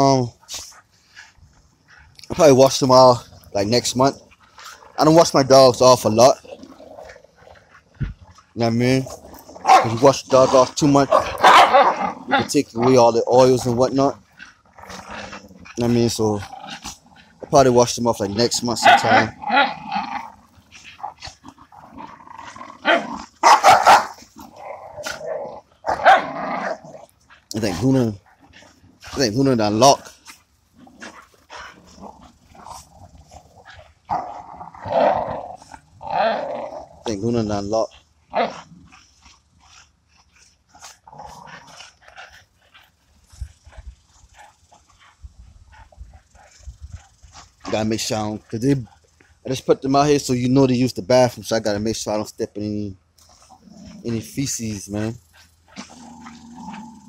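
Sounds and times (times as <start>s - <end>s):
dogs growling: 0.0s - 50.2s, 53.2s - 57.0s
dogs barking: 9.6s - 13.1s, 18.4s - 19.8s, 22.8s - 24.2s, 25.8s - 26.8s.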